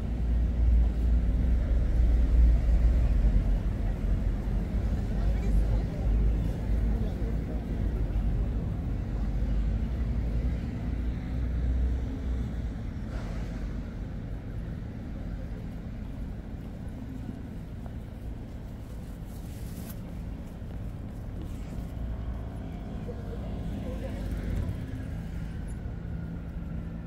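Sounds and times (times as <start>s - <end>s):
street traffic rumble: 0.0s - 27.0s.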